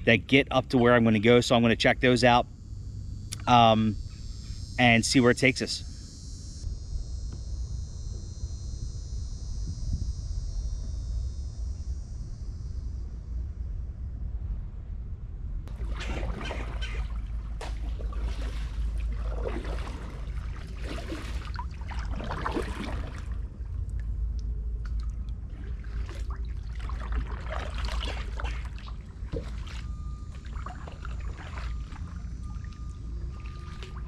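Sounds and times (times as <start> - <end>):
faint steady tone: 0.0 - 34.0
steady low rumble: 0.0 - 34.0
paddle strokes splashing water: 15.7 - 23.8, 24.8 - 34.0.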